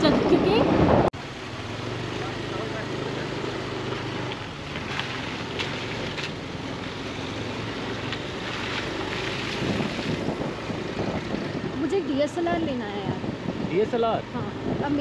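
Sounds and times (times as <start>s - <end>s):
wind noise on microphone: 0.0s - 1.1s, 8.0s - 15.0s
scooter engine running: 0.0s - 15.0s.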